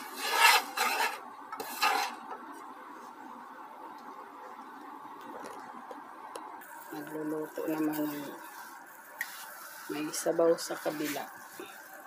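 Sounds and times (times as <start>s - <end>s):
spatula scraping a pan: 0.0s - 2.4s, 7.8s - 11.8s
faint steady hiss: 0.0s - 12.0s.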